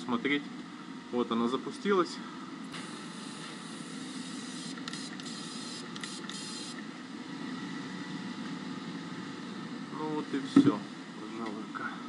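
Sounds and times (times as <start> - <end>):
extraction fan running: 0.0 - 12.0
spray gun hissing: 2.7 - 6.8.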